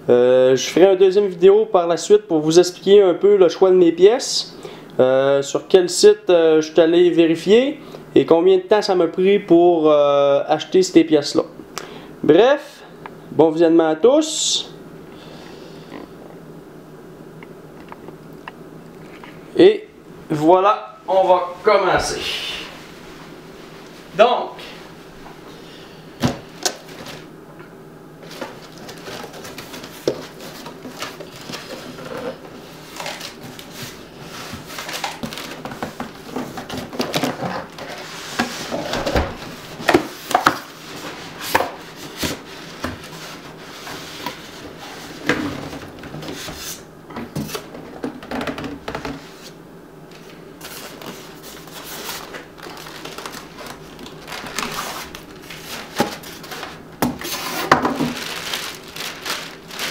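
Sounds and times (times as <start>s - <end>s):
cardboard scraping and rubbing: 53.6s - 59.9s.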